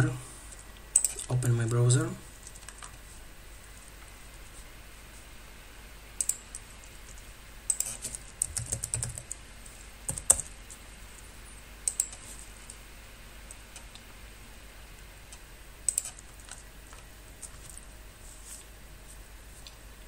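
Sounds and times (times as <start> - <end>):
computer keyboard typing: 1.0 - 1.8, 2.4 - 3.0, 6.2 - 9.4, 10.1 - 10.5, 11.8 - 12.2, 15.9 - 17.8.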